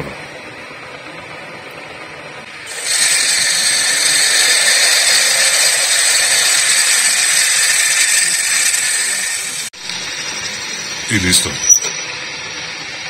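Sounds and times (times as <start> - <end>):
drill cutting into metal: 2.7 - 10.9.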